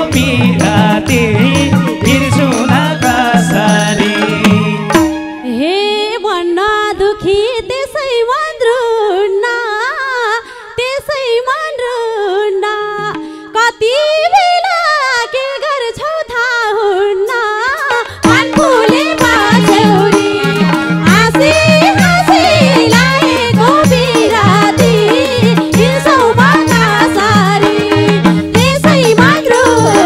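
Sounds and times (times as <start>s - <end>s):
band playing with drums: 0.0s - 5.4s, 17.9s - 30.0s
woman singing into a microphone: 0.0s - 30.0s.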